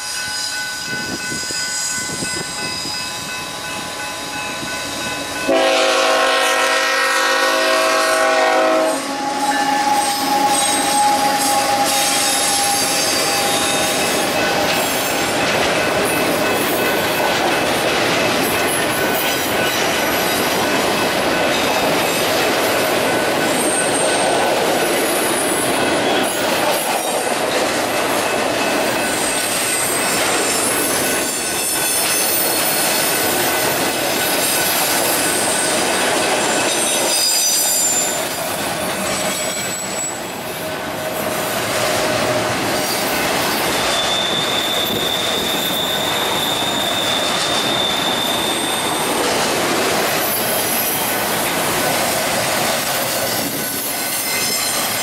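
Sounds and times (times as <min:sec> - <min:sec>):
steel wheels rumbling on rail: 0:00.0 - 0:55.0
high-pitched wheel squeals: 0:08.7 - 0:15.2, 0:30.8 - 0:33.4, 0:36.5 - 0:40.5, 0:42.8 - 0:49.2, 0:53.4 - 0:55.0.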